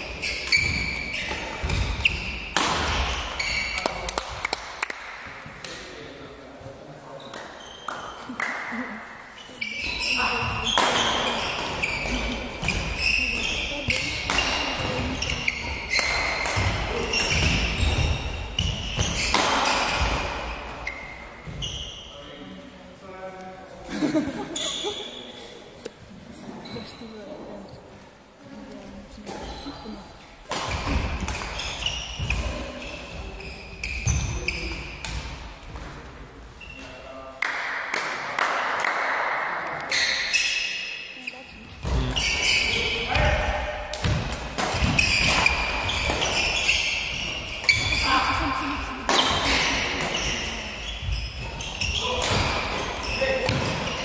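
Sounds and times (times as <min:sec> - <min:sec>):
shoes squeaking on court floor: 0:00.0 - 0:04.1, 0:07.1 - 0:08.4, 0:09.3 - 0:22.4, 0:24.5 - 0:25.6, 0:26.4 - 0:27.8, 0:28.8 - 0:35.9, 0:36.5 - 0:37.1, 0:39.9 - 0:43.3, 0:44.0 - 0:54.0
racket hitting shuttlecock: 0:00.2 - 0:05.8, 0:10.0 - 0:21.6, 0:30.5 - 0:32.6, 0:41.8 - 0:48.0, 0:49.0 - 0:51.1, 0:51.7 - 0:54.0.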